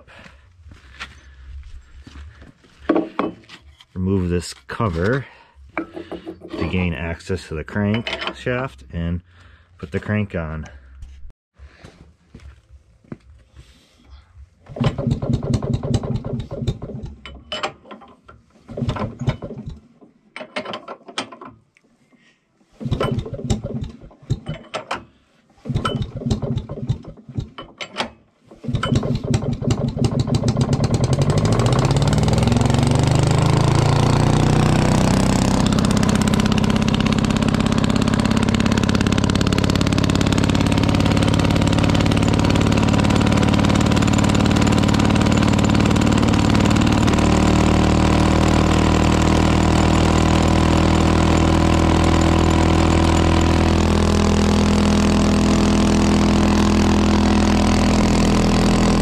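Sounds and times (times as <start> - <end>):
two-stroke engine starting: 14.6 - 17.4, 18.6 - 19.9, 22.8 - 59.0.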